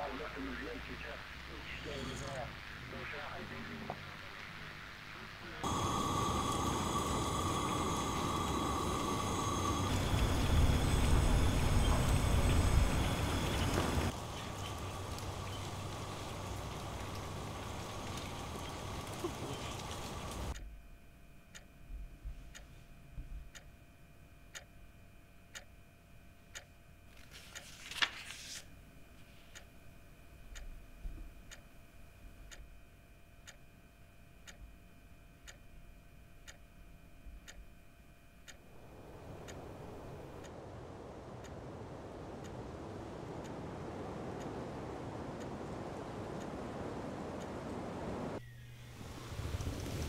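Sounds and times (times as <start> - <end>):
steady hiss: 0.0 - 20.6, 38.6 - 50.0
drone of held tones: 5.6 - 20.6, 34.2 - 50.0
clock ticking: 21.5 - 21.8, 23.3 - 23.8, 24.5 - 24.8, 25.5 - 25.9, 26.5 - 26.8, 30.5 - 31.8, 33.4 - 33.7, 34.4 - 35.7, 36.4 - 36.8, 38.4 - 40.6, 41.4 - 48.0.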